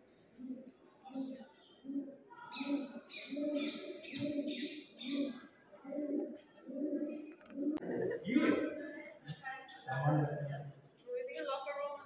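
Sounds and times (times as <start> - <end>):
low repeating bird notes: 1.1 - 6.2.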